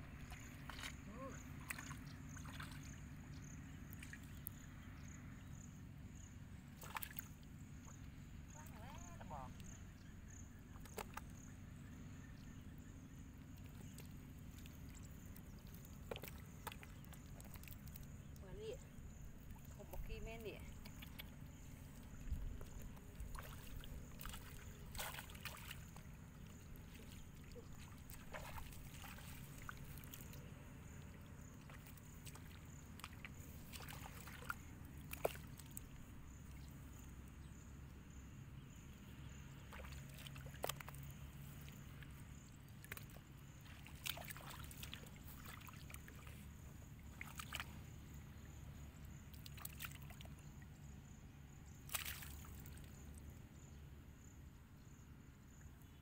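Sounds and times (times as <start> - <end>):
hands sloshing in muddy water: 0.0 - 4.5, 6.7 - 8.0, 10.6 - 11.6, 13.5 - 18.8, 19.4 - 36.8, 39.5 - 50.7, 51.8 - 53.1
low steady rumble: 0.0 - 49.4
small splashes and clicks: 0.2 - 3.1, 3.8 - 4.6, 6.8 - 7.5, 10.7 - 11.4, 13.6 - 18.8, 19.4 - 36.8, 39.6 - 48.0, 49.2 - 50.7, 51.8 - 53.2.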